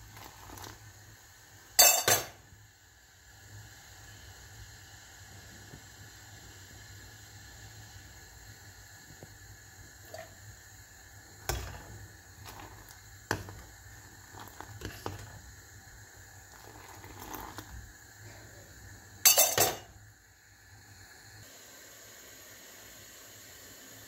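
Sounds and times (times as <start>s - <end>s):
boiling liquid hissing: 0.0s - 24.0s
steel ladle clinking on saucepan: 1.8s - 2.4s, 19.2s - 19.9s.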